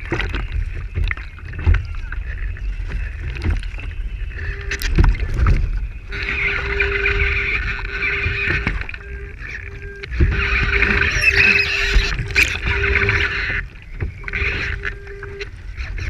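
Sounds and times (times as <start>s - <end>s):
low rumble: 0.0s - 16.0s
steady whine: 0.0s - 16.0s
water splashing against hull: 0.0s - 16.0s.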